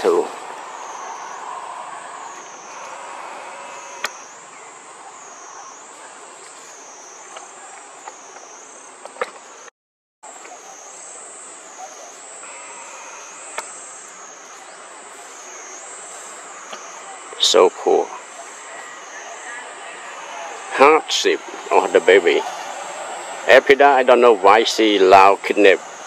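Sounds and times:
insect chorus drone: 0:00.0 - 0:26.0
sharp clicks: 0:04.0 - 0:04.2.

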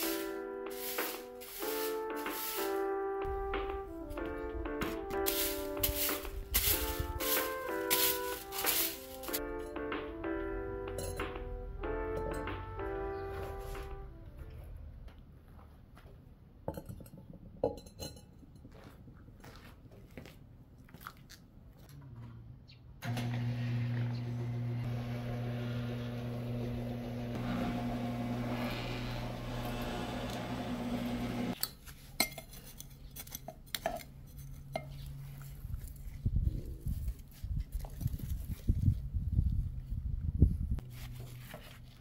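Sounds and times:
flower pots clinking: 0:05.2 - 0:09.7.

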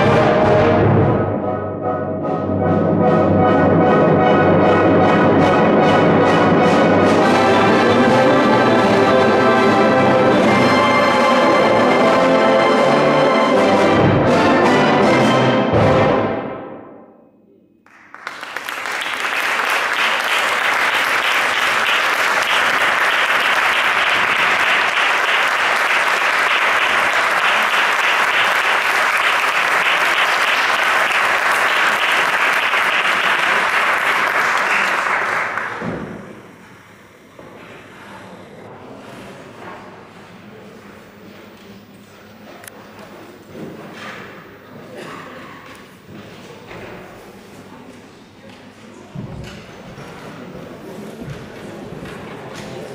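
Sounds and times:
brass band chord: 0:00.0 - 0:17.0
audience applauding: 0:17.8 - 0:36.5.

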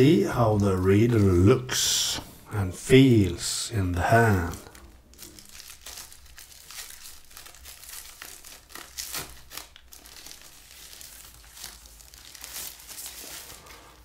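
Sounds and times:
packaging crinkling: 0:04.1 - 0:14.0.

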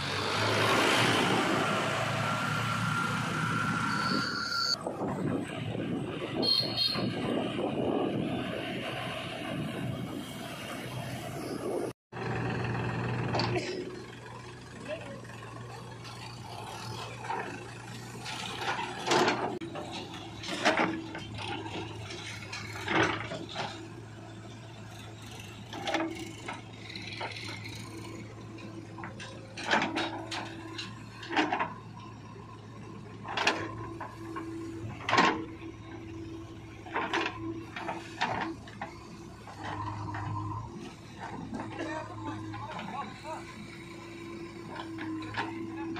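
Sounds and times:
diesel engine running: 0:07.0 - 0:45.9
bucket and arm clanking: 0:28.8 - 0:32.2.

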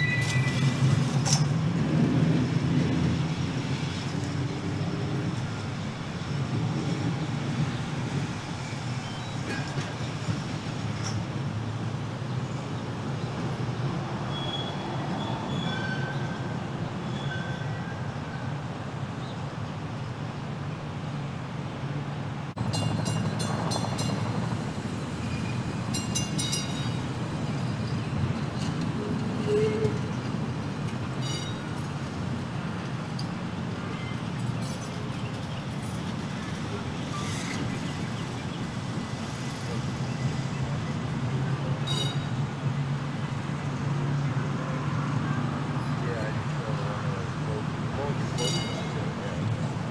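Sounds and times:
high-pitched wheel squeals: 0:00.0 - 0:01.4, 0:14.3 - 0:18.0, 0:28.6 - 0:30.2, 0:41.8 - 0:42.4
streetcar rumbling on track: 0:00.0 - 0:49.9.

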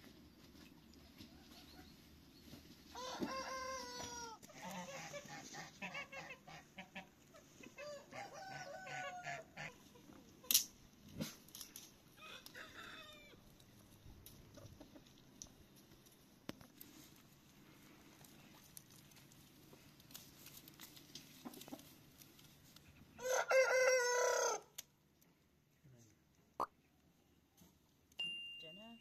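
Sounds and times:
chickens clucking: 0:01.0 - 0:10.4, 0:14.3 - 0:15.6, 0:21.2 - 0:22.1
rooster crowing: 0:02.9 - 0:04.4, 0:07.8 - 0:09.5, 0:12.2 - 0:13.4, 0:23.2 - 0:24.7.

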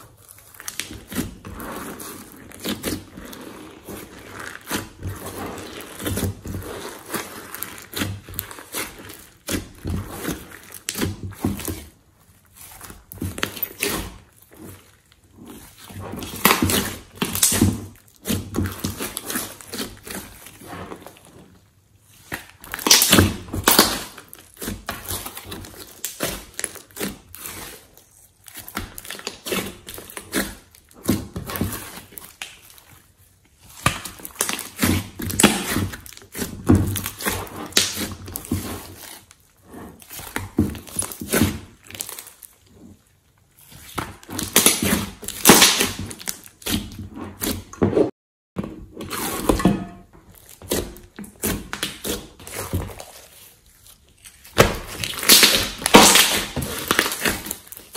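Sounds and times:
hands squeezing slime: 0:00.0 - 0:47.6, 0:50.3 - 0:57.9
slime crackling pops: 0:44.4 - 0:46.7, 0:54.5 - 0:57.8.

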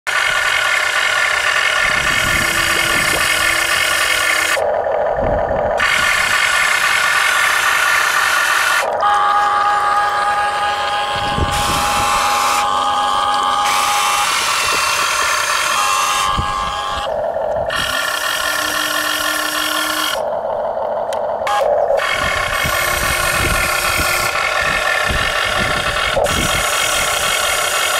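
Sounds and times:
electric motor whine: 0:01.7 - 0:20.4, 0:21.2 - 0:27.9.

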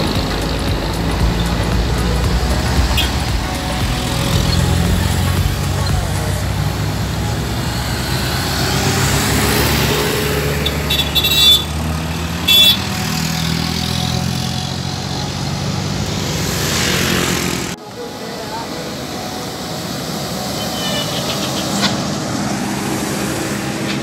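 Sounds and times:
horn toots: 0:00.0 - 0:06.8, 0:07.7 - 0:14.8
vehicle rushing by: 0:00.0 - 0:18.0, 0:18.9 - 0:24.0
bus engine running: 0:00.0 - 0:24.0.

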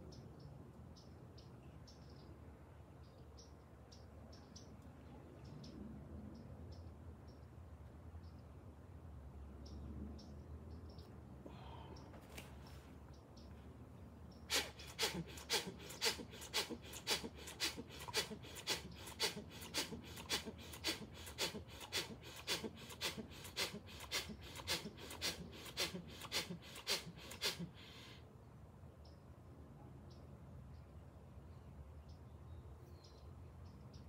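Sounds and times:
forceful pumped breaths: 0:14.5 - 0:28.2.

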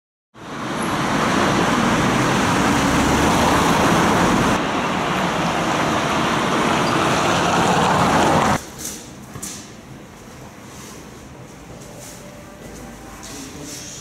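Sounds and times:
rush of passing road vehicles: 0:00.4 - 0:08.6.

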